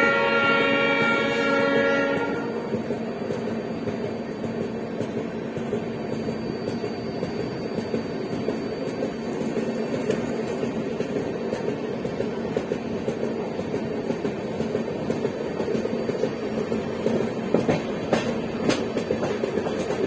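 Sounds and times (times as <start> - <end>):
locomotive horn: 0.0 - 2.7
train wheels rumbling on rails: 0.0 - 20.0.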